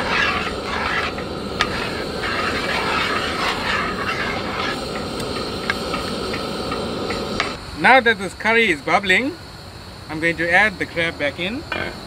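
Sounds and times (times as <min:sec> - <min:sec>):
sauce bubbling in a pot: 0:00.0 - 0:07.1.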